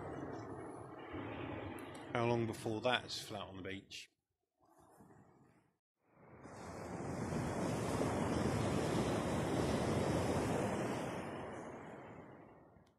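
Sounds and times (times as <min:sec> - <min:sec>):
surf washing onto beach: 0:06.2 - 0:12.5
wind on microphone: 0:06.4 - 0:12.8.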